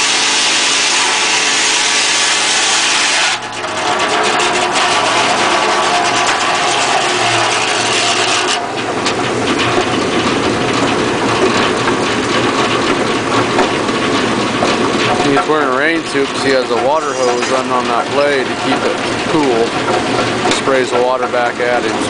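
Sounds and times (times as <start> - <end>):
saw blade cutting wood: 0.0 - 8.6, 16.5 - 18.2
sawmill engine running: 0.0 - 22.0
knocks and rattles: 0.2 - 22.0.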